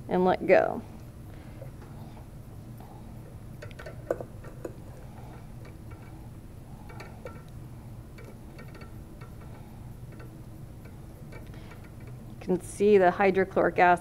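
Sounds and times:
steady low hum: 0:00.0 - 0:14.0
glass and metal clicks and taps: 0:06.9 - 0:07.6, 0:08.2 - 0:12.2.

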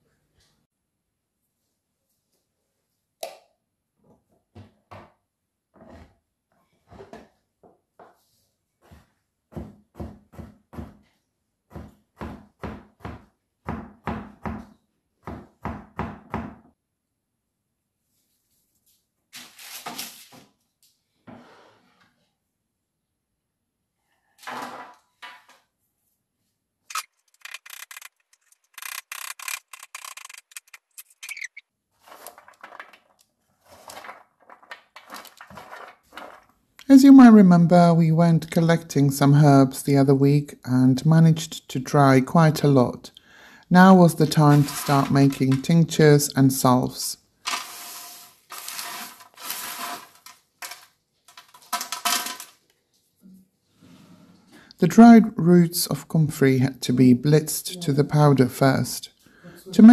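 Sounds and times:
knife chopping on wooden board: 0:08.8 - 0:11.0, 0:11.7 - 0:16.5
root pieces clattering into tray: 0:32.0 - 0:36.6, 0:47.5 - 0:52.6.

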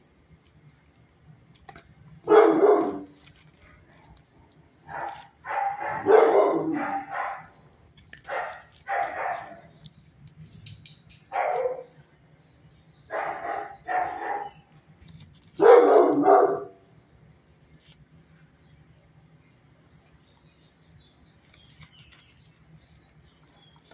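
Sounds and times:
dog barking: 0:02.2 - 0:03.1, 0:04.9 - 0:07.6, 0:08.3 - 0:09.7, 0:11.3 - 0:11.9, 0:13.1 - 0:14.7, 0:15.6 - 0:16.8.

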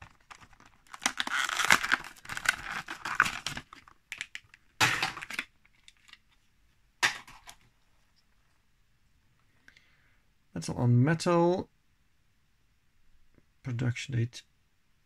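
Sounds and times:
plastic packaging crinkling: 0:00.0 - 0:06.3.

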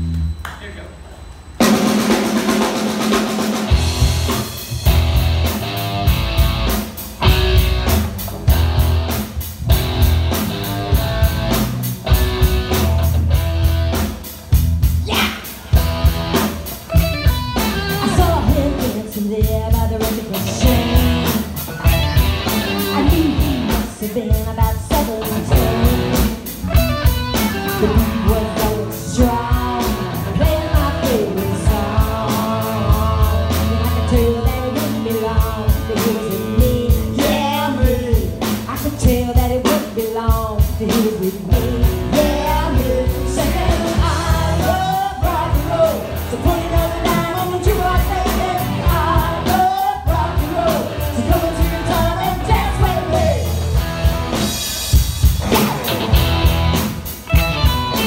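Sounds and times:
keyboards: 0:00.0 - 0:58.0
drum kit beat: 0:01.6 - 0:58.0
electric guitar: 0:01.6 - 0:58.0
woman singing through speakers: 0:18.0 - 0:21.0, 0:22.8 - 0:25.8, 0:27.9 - 0:53.4.

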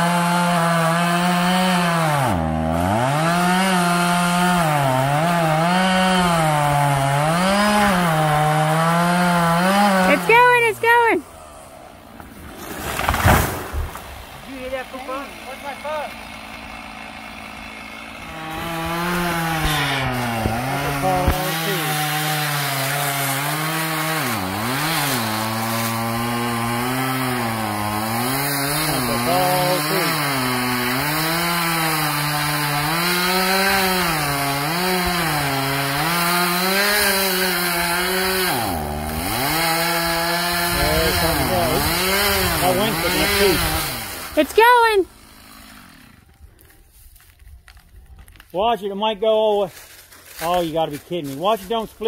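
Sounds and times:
chainsaw cutting into tree: 0:00.0 - 0:46.7.

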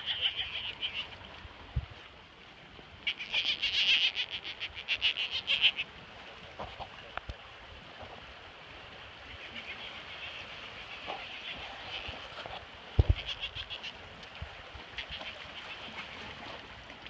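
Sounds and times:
rapid rattling animal calls: 0:00.0 - 0:01.1, 0:03.1 - 0:05.8, 0:13.1 - 0:13.9.

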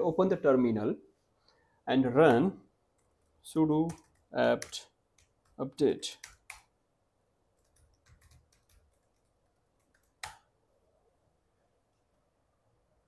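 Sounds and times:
typing on computer keyboard: 0:03.0 - 0:06.7, 0:07.6 - 0:10.5.

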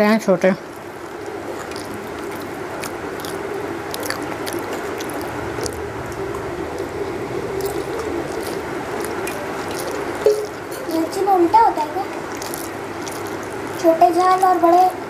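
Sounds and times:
steady hum: 0:00.0 - 0:15.0
chewing: 0:00.7 - 0:15.0
fingers mixing food on steel plate: 0:07.6 - 0:15.0.

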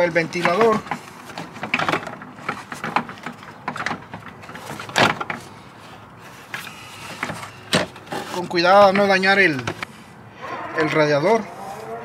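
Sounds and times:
plastic scraping and knocking on metal: 0:00.3 - 0:05.5.

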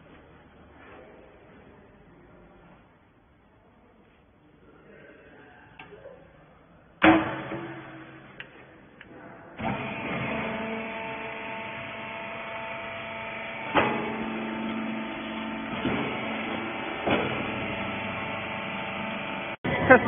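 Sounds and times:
machine clunk: 0:07.0 - 0:08.6, 0:13.6 - 0:18.4
electric motor and hydraulic pump whine: 0:09.6 - 0:19.6.

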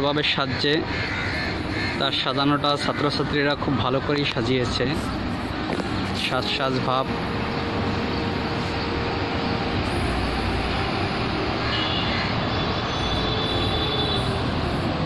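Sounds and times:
traffic passing overhead: 0:00.0 - 0:15.0
faint high whine: 0:04.7 - 0:15.0.

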